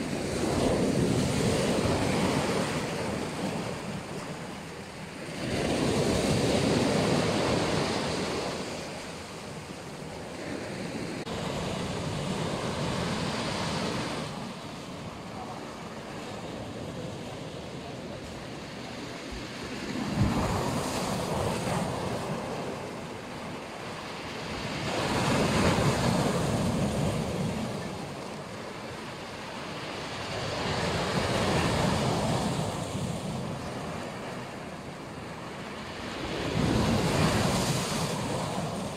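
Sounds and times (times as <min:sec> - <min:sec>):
surf breaking and washing back: 0:00.0 - 0:38.9.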